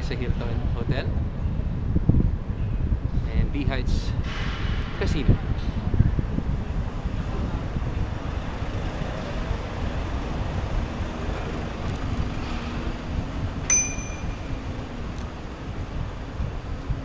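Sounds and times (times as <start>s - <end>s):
wind buffeting microphone: 0.0s - 17.0s
sharp metallic ping: 13.7s - 14.6s.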